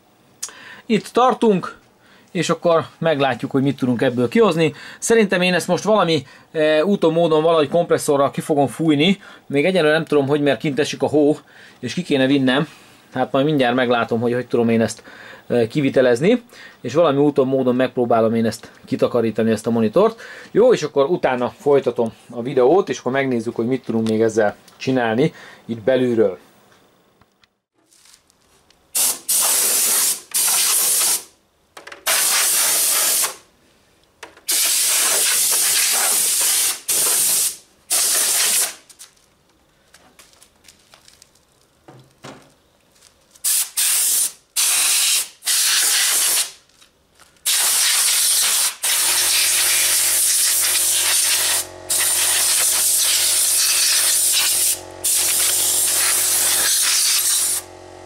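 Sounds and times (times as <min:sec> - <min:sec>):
compressed air blow gun hissing: 0:29.0 - 0:31.3, 0:32.1 - 0:33.4, 0:34.5 - 0:38.8, 0:43.4 - 0:46.6, 0:47.4 - 0:57.7
steady low hum: 0:49.0 - 0:58.0.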